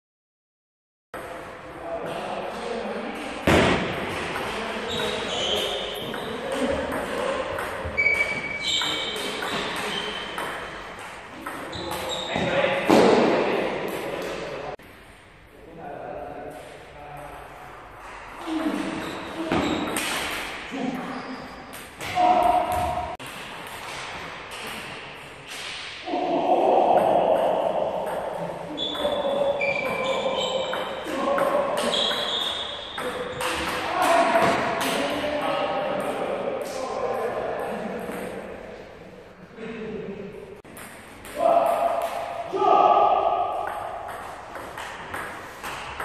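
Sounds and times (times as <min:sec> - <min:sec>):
table tennis ball bouncing: 0:03.5 - 0:13.2, 0:27.0 - 0:35.0, 0:40.6 - 0:42.3, 0:43.5 - 0:46.0
shoes squeaking on floor: 0:04.8 - 0:06.4, 0:07.8 - 0:10.4, 0:11.7 - 0:12.6, 0:18.6 - 0:20.0, 0:21.0 - 0:21.7, 0:28.8 - 0:31.0, 0:31.8 - 0:33.0.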